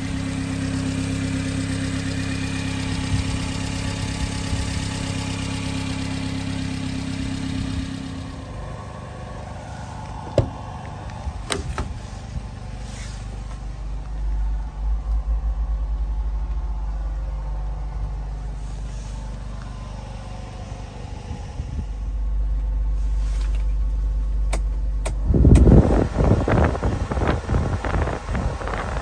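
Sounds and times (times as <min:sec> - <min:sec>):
car engine idling: 0:00.0 - 0:29.0
rushing and buffeting noise: 0:07.4 - 0:29.0.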